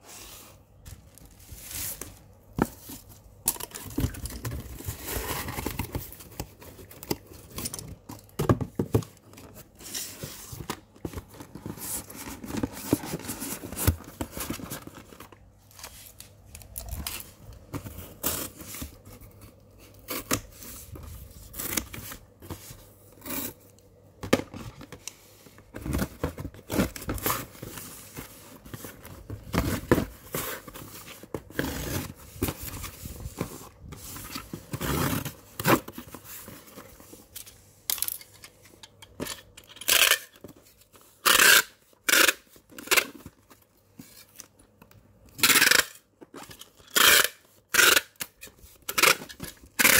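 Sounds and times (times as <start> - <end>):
cardboard scraping and tearing: 25.8 - 36.8.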